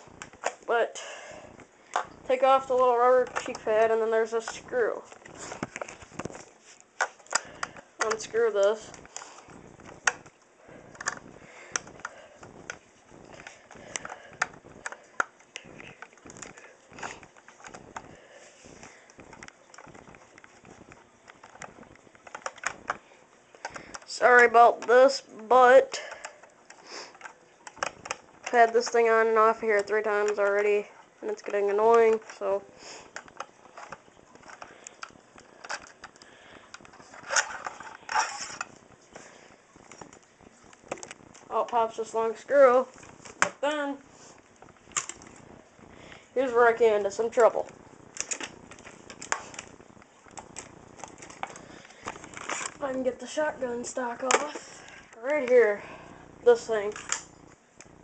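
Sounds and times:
clicks and rattles of parts: 0:01.9 - 0:18.2, 0:18.8 - 0:25.1, 0:25.9 - 0:41.8, 0:44.6 - 0:45.4, 0:47.4 - 0:52.9, 0:56.7 - 0:57.9
rustling scrapes: 0:02.8 - 0:10.1, 0:32.8 - 0:41.4.

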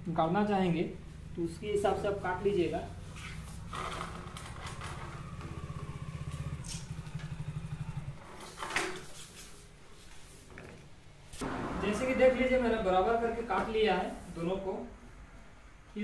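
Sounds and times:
small engine puttering: 0:02.9 - 0:09.1.

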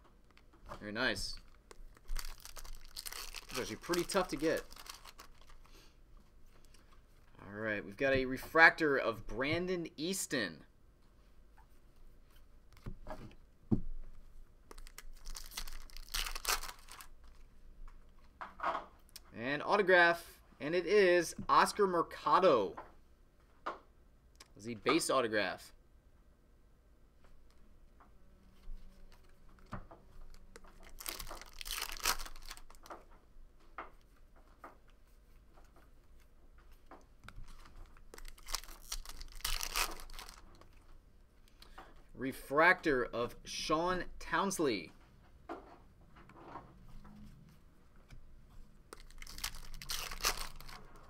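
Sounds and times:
foil wrapper tearing and crinkling: 0:01.4 - 0:05.8, 0:14.7 - 0:17.1, 0:30.3 - 0:32.9, 0:37.4 - 0:40.7, 0:48.9 - 0:50.9.

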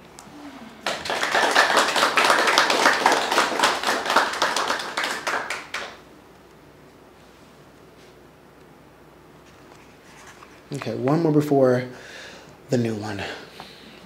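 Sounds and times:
small audience clapping: 0:00.8 - 0:06.1.

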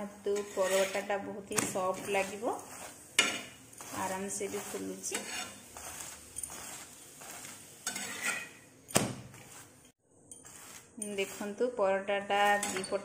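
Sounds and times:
spatula scraping a griddle: 0:00.2 - 0:13.0
spatula clanking against griddle: 0:03.2 - 0:03.6, 0:07.8 - 0:08.6.

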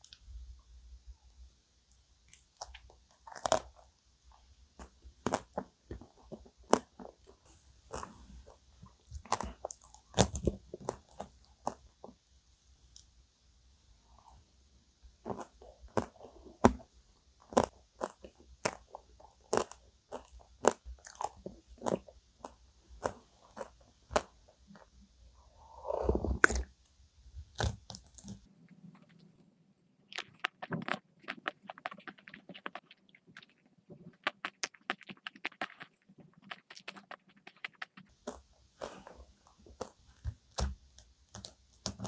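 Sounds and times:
crunching and chewing: 0:02.3 - 0:03.9, 0:04.8 - 0:12.2, 0:15.2 - 0:25.0, 0:27.5 - 0:28.5, 0:30.1 - 0:42.0
slurping sip of coffee: 0:25.5 - 0:26.6.

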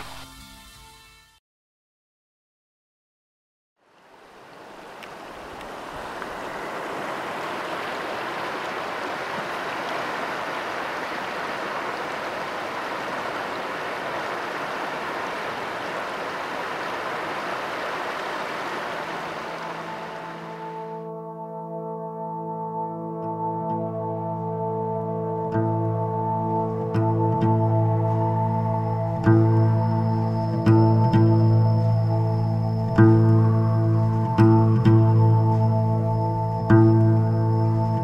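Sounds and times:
river water rushing: 0:03.8 - 0:21.0.

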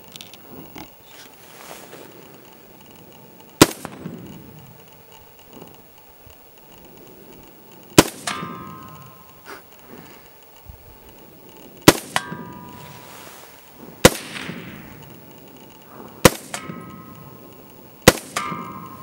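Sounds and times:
rifle shots: 0:03.5 - 0:05.8, 0:07.9 - 0:10.0, 0:11.2 - 0:19.0
steel target clanging: 0:08.0 - 0:10.2, 0:11.8 - 0:19.0.

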